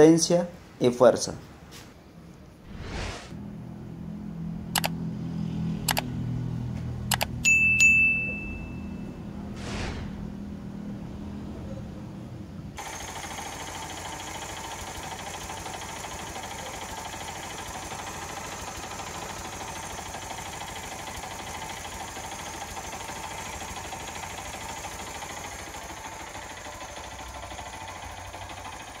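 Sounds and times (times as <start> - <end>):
engine idling: 12.8 - 29.0.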